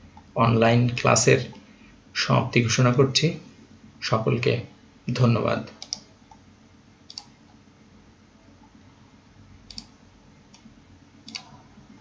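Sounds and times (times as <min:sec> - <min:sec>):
faint low hum: 0:00.0 - 0:12.0
computer mouse clicking: 0:05.8 - 0:06.4, 0:07.1 - 0:07.6, 0:09.7 - 0:11.6.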